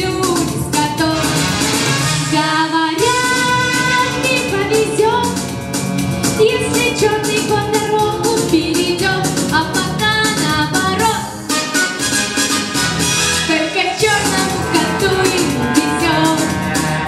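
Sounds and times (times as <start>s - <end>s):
backing track with steady beat: 0.0s - 17.0s
girl singing into a microphone: 2.4s - 5.3s, 6.4s - 11.3s, 13.5s - 16.4s.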